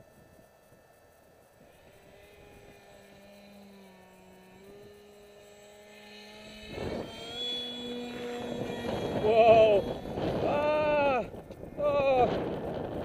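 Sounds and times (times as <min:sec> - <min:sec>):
model jet propeller whining: 0:00.0 - 0:13.0
wind buffeting microphone: 0:06.4 - 0:13.0.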